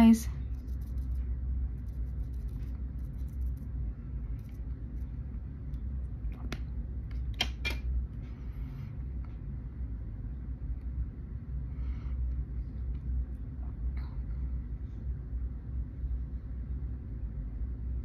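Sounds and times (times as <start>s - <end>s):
low steady rumble: 0.0s - 18.0s.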